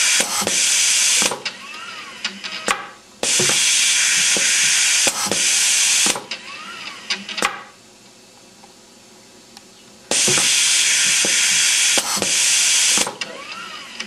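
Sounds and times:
compressed air hissing: 0.0s - 1.4s, 3.2s - 6.3s, 10.1s - 13.2s
applicator head motor whine: 0.0s - 7.5s, 10.1s - 14.0s
sharp actuator clicks: 0.1s - 0.6s, 4.3s - 6.4s, 10.1s - 13.6s.

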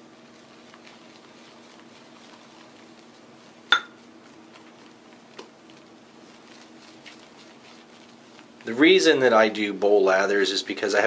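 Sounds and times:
brush swishing lather: 0.0s - 11.0s
bowl clinking: 3.7s - 4.0s.

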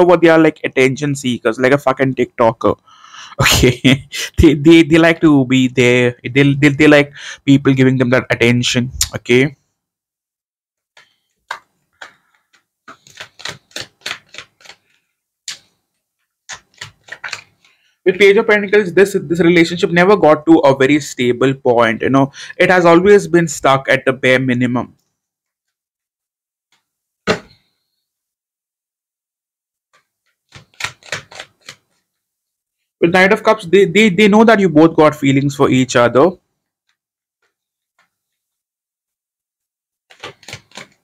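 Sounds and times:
clicks and taps of cards: 10.9s - 14.9s, 16.5s - 17.7s, 40.1s - 41.0s
cards tapping on tabletop: 27.3s - 27.6s.

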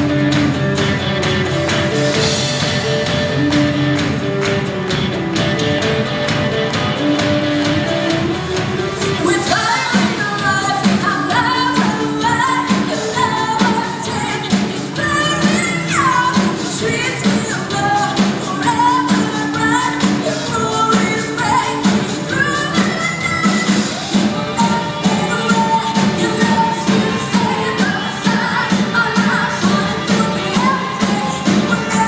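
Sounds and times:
acoustic and electric guitars: 0.0s - 32.0s
steady drum beat: 0.0s - 32.0s
person singing: 8.1s - 32.0s.

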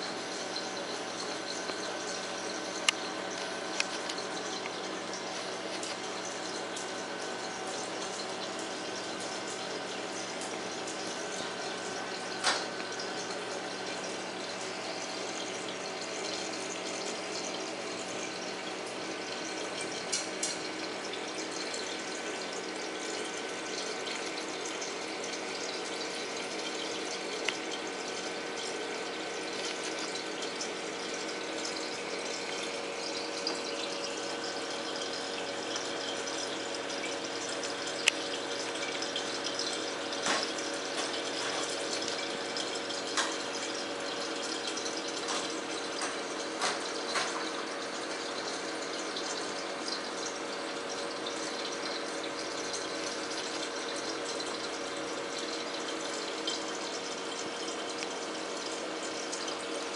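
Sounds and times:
pump hum: 0.0s - 59.9s.

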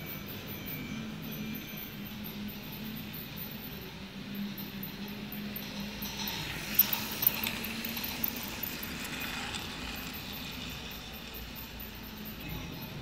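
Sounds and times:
toy train rattling on plastic track: 4.4s - 13.0s.

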